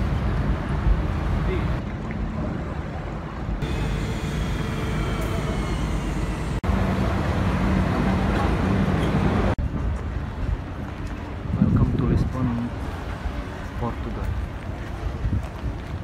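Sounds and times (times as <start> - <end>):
city traffic engine hum: 0.0 - 11.6.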